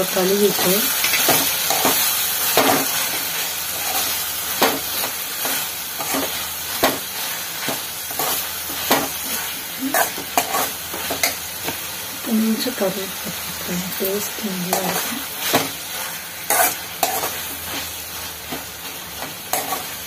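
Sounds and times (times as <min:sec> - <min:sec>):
vegetables sizzling in oil: 0:00.0 - 0:20.0
metal spatula scraping pan: 0:00.6 - 0:11.4, 0:14.7 - 0:20.0.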